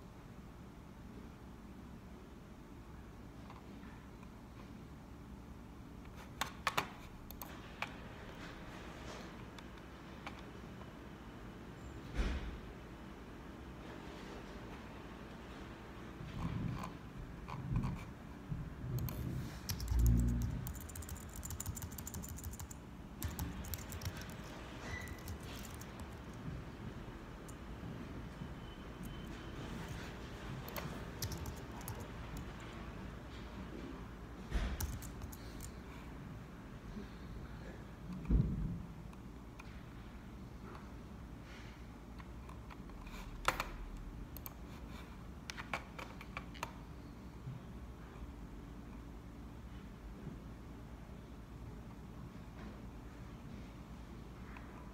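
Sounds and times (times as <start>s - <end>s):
faint room noise: 0.0s - 54.9s
computer keys clicking: 6.4s - 7.9s, 18.9s - 26.4s, 30.6s - 32.7s, 34.6s - 35.8s, 44.3s - 44.6s
keyboard key clicks: 30.7s - 32.5s, 34.6s - 35.7s.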